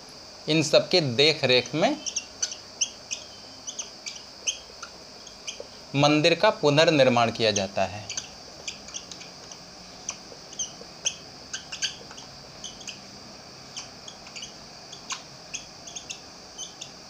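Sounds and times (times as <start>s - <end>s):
marker squeaking on whiteboard: 1.6s - 5.7s, 7.6s - 13.0s, 13.7s - 17.0s.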